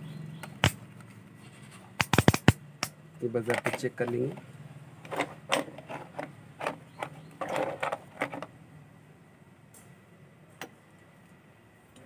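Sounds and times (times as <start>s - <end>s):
test probes clicking and tapping: 2.0s - 4.3s.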